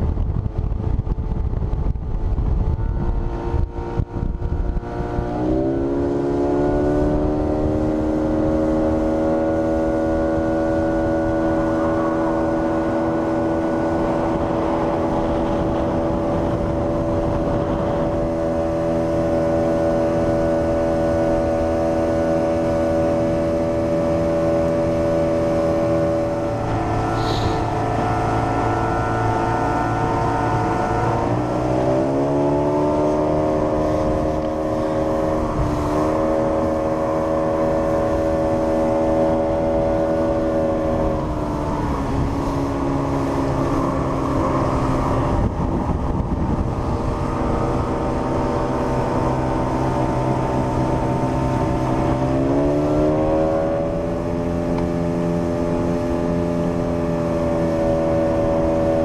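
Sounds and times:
outboard motor running: 0:00.0 - 0:59.0
water noise: 0:00.0 - 0:59.0.

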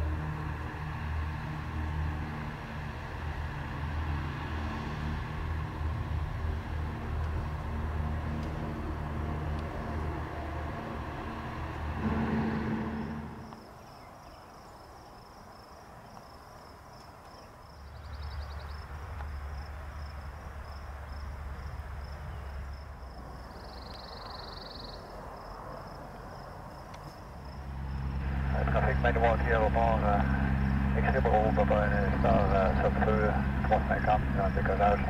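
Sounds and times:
low engine hum: 0:00.0 - 0:14.0, 0:26.7 - 0:35.0
insects chirping: 0:12.0 - 0:35.0.

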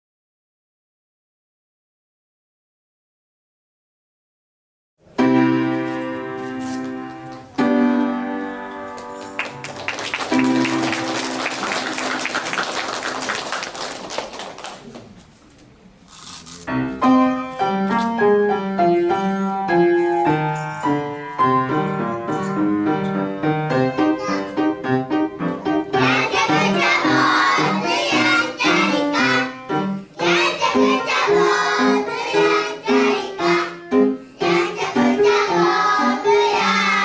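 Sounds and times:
piano playing: 0:05.0 - 0:13.6, 0:16.6 - 0:37.0
applause: 0:09.0 - 0:15.2.

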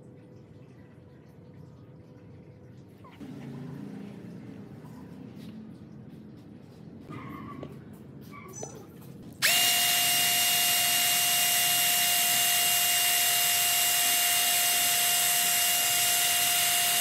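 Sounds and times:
electric drill whine: 0:09.4 - 0:17.0.

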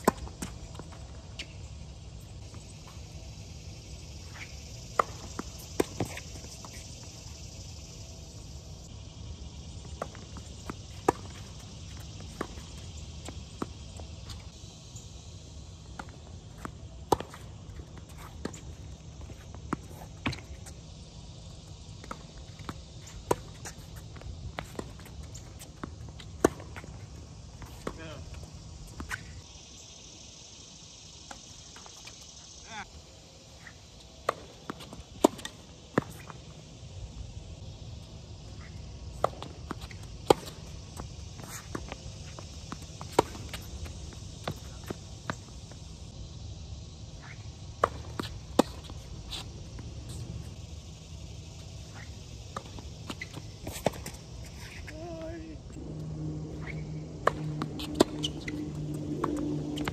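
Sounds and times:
shoes on court: 0:00.0 - 0:08.8, 0:09.6 - 0:14.6, 0:15.7 - 0:29.5, 0:33.5 - 0:46.0, 0:47.1 - 0:59.9
footsteps on court: 0:15.8 - 0:20.8, 0:47.2 - 0:50.6, 0:51.5 - 0:59.9
ball bouncing on hard court: 0:56.6 - 0:59.9
tennis ball struck by racket: 0:56.6 - 0:59.9.

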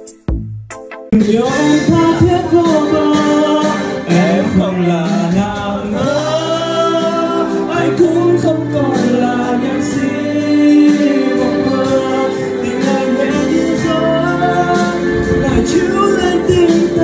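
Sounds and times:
man singing into microphone: 0:01.1 - 0:17.0.

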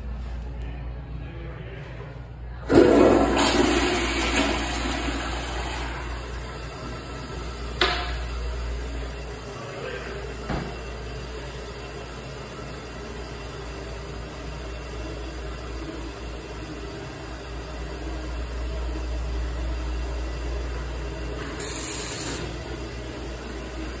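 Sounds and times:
electric hand dryer blowing: 0:02.7 - 0:08.5, 0:20.2 - 0:24.0.

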